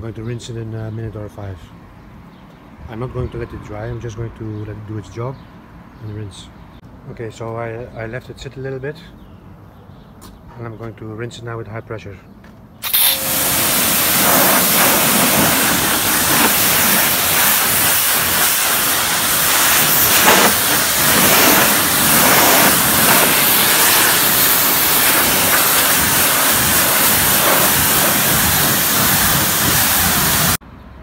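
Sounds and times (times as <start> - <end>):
pressure washer jet hissing: 12.8 - 30.6.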